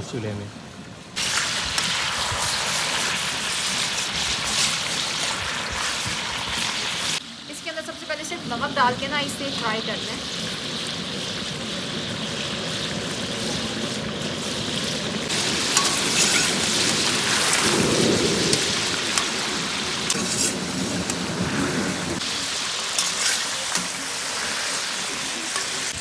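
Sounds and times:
chicken sizzling in hot oil: 0:01.1 - 0:26.0.

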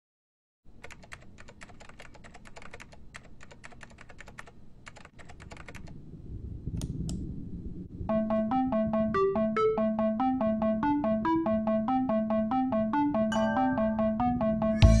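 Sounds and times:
computer keyboard typing: 0:00.7 - 0:06.0
low rumble: 0:06.0 - 0:09.2
electric piano notes: 0:08.1 - 0:14.9.

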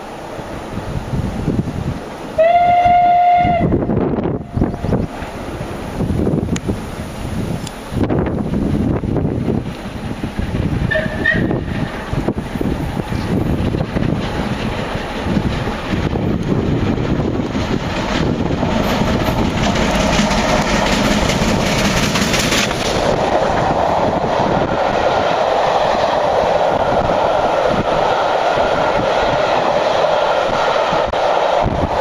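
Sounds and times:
steam locomotive passing: 0:00.0 - 0:32.0
train coaches rolling past: 0:00.0 - 0:32.0.

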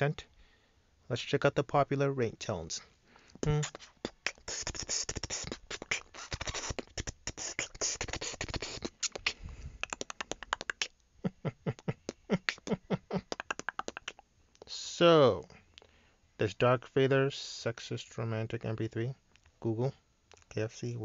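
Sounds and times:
beatboxing clicks and snare hits: 0:03.4 - 0:11.0, 0:11.9 - 0:14.8.

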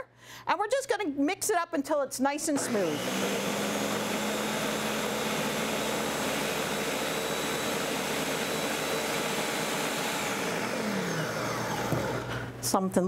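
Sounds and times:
blender motor running: 0:02.5 - 0:12.6
food churning in blender: 0:02.6 - 0:12.6.

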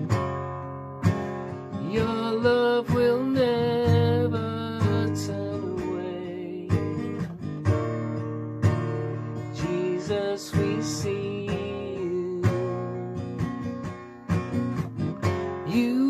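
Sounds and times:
acoustic guitar strumming: 0:00.0 - 0:16.0
man singing: 0:01.8 - 0:07.2, 0:09.4 - 0:13.1, 0:15.7 - 0:16.0.

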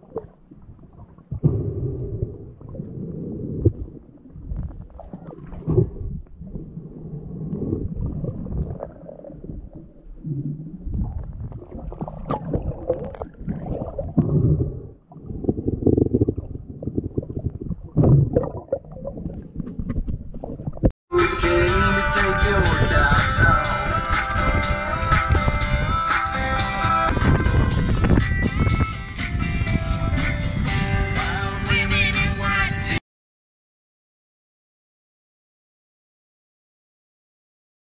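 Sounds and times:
muffled underwater sloshing: 0:00.0 - 0:20.9
sharp underwater knocks: 0:01.2 - 0:02.2, 0:04.5 - 0:06.3.

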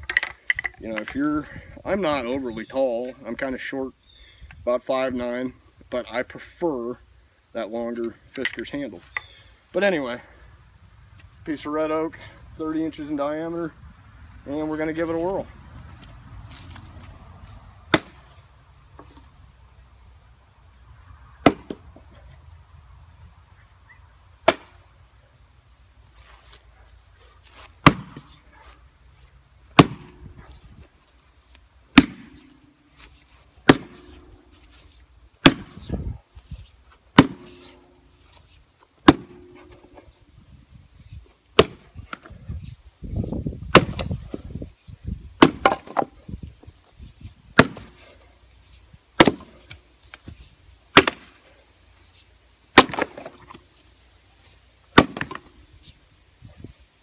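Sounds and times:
axe chopping wood: 0:17.9 - 0:18.4, 0:21.4 - 0:21.9, 0:24.4 - 0:24.8, 0:27.6 - 0:28.4, 0:29.7 - 0:30.6, 0:31.9 - 0:36.1, 0:37.1 - 0:40.1, 0:41.6 - 0:42.4, 0:43.7 - 0:44.5, 0:45.4 - 0:46.2, 0:47.5 - 0:48.2, 0:49.2 - 0:51.5, 0:52.7 - 0:53.6, 0:54.9 - 0:55.6.

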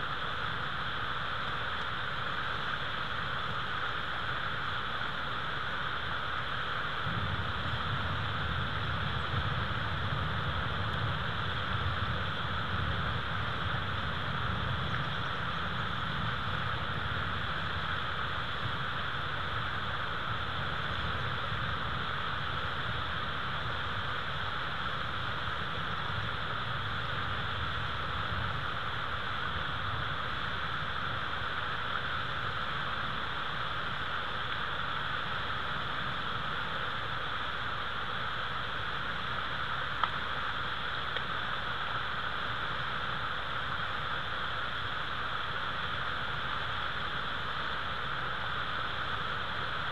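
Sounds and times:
steady hiss: 0:00.0 - 0:49.9
faint tick: 0:01.5 - 0:02.0, 0:40.0 - 0:40.3, 0:41.1 - 0:41.4.

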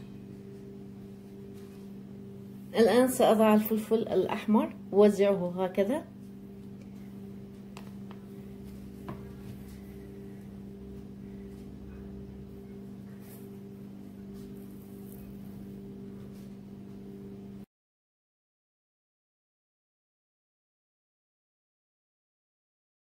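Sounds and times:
low hum: 0:00.0 - 0:17.7.

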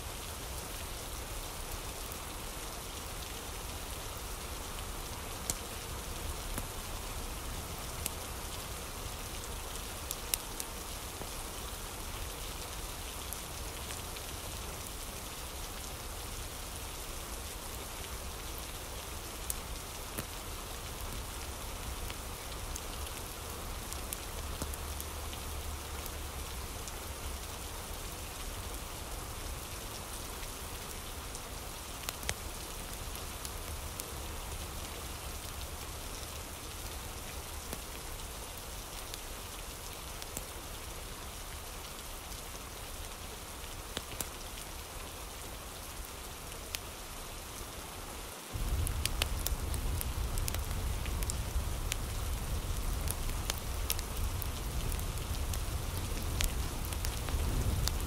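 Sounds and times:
rain hissing on a surface: 0:00.0 - 0:58.0
low rumble: 0:48.6 - 0:58.0.

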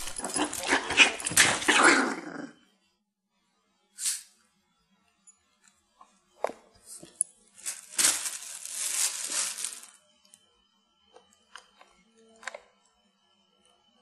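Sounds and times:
plastic bag crinkling: 0:00.0 - 0:01.7, 0:07.6 - 0:10.0.

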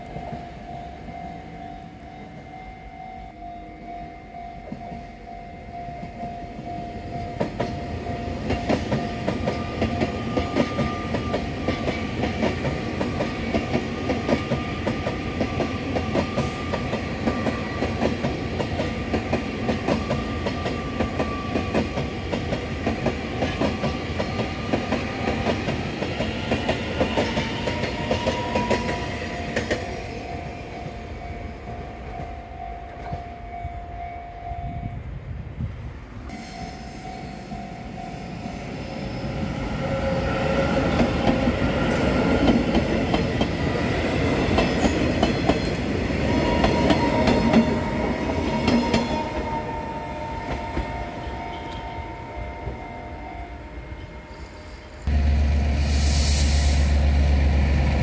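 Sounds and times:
train rumble: 0:00.0 - 0:54.3, 0:54.9 - 0:58.0.

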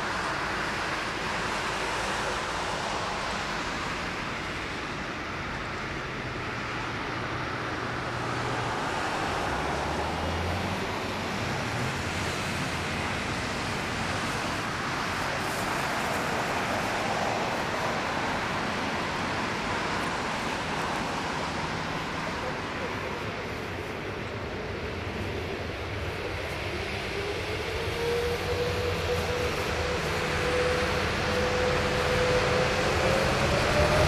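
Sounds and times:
jet engines rumbling and hissing: 0:00.0 - 0:34.0.

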